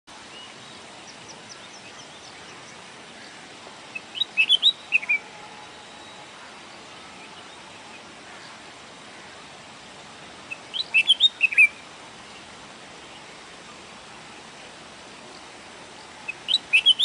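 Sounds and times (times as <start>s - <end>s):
bird whistled song: 3.9s - 6.2s, 10.5s - 11.8s, 16.3s - 17.0s.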